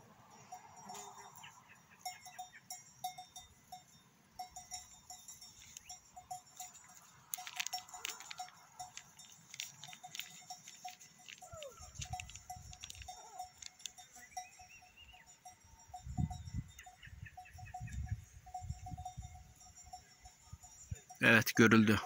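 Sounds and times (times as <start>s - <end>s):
light clicks and patter: 5.5s - 14.5s.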